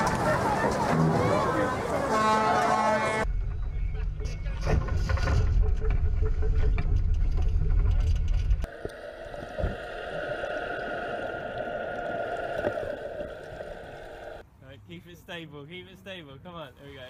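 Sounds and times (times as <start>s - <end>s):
wind buffeting microphone: 8.6s - 14.4s
rushing water: 8.7s - 14.4s
underwater scooter motor whine: 8.7s - 14.4s.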